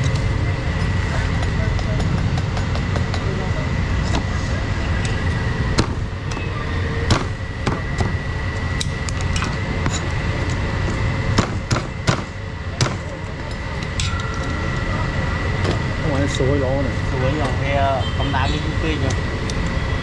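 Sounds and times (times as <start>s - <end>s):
rumble of traffic and machinery: 0.0s - 20.0s.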